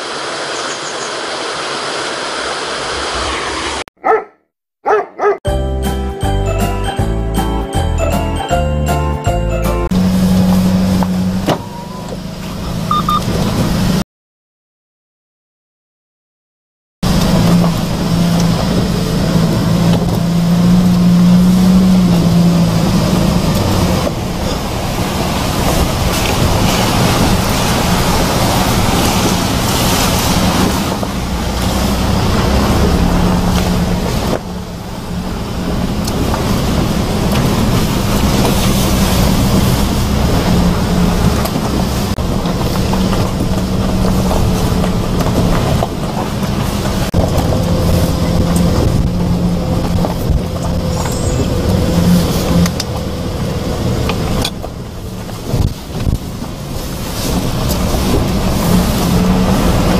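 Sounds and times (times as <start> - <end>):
truck engine droning: 5.5 - 14.0, 17.0 - 59.9
tyres crunching on gravel: 41.2 - 53.1.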